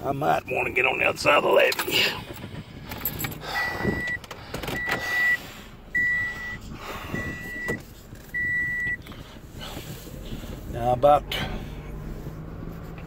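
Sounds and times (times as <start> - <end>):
car rumbling along road: 0.0 - 13.0
car warning chime beeps: 0.3 - 1.8, 3.1 - 9.1.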